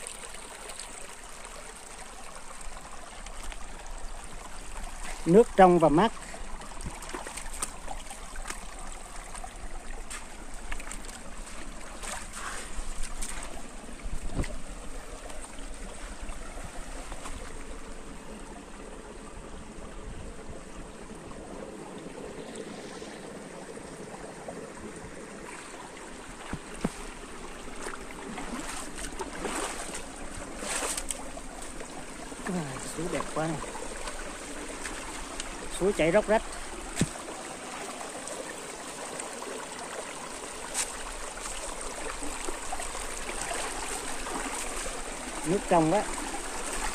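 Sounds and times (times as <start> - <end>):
stream babbling over rocks: 0.0 - 46.9.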